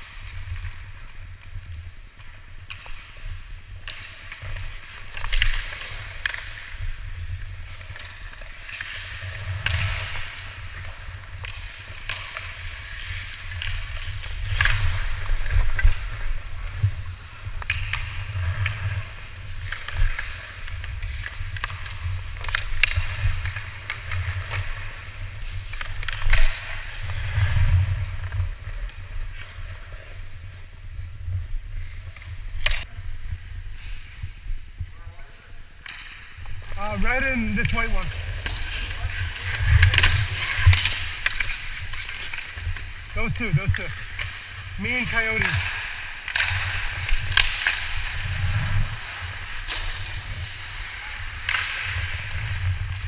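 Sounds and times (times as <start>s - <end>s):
hockey sticks and puck clacking: 0.0s - 34.3s, 35.8s - 53.0s
skates scraping on ice: 0.0s - 34.6s, 35.8s - 53.0s.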